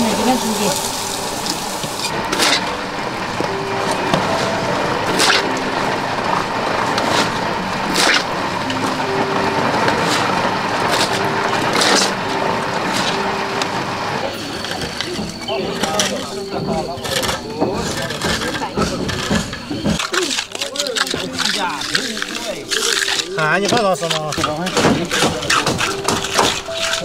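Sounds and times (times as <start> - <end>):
steady grinding noise: 0.0 - 27.0
shovel scraping wet concrete: 2.3 - 2.7, 4.3 - 5.7, 6.9 - 8.3, 9.9 - 12.2, 20.0 - 27.0.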